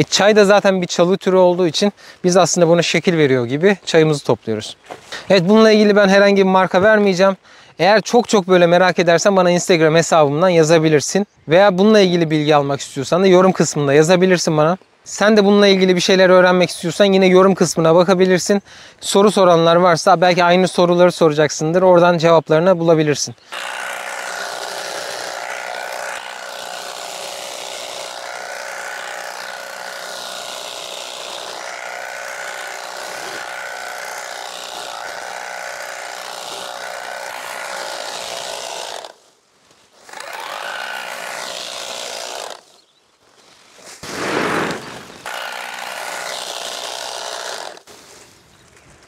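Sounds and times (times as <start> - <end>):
electric cutter whining: 23.4 - 39.2, 40.0 - 42.9, 44.4 - 47.9.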